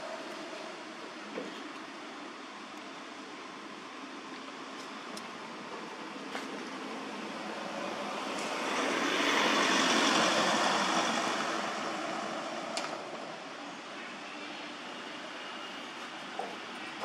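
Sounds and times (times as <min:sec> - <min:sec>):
steady background noise: 0:00.0 - 0:17.0
vehicle passing: 0:07.4 - 0:12.7.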